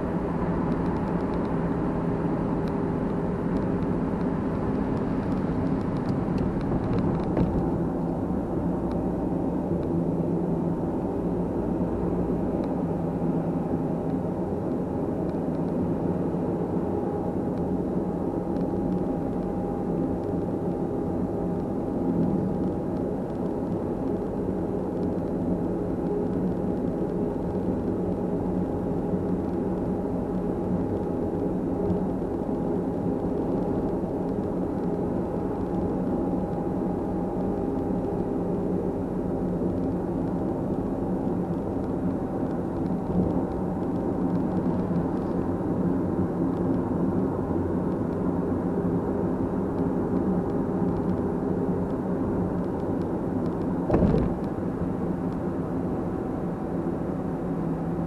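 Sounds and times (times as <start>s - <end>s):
car engine and tyre hum: 0.0s - 58.0s
short thump: 53.9s - 54.5s.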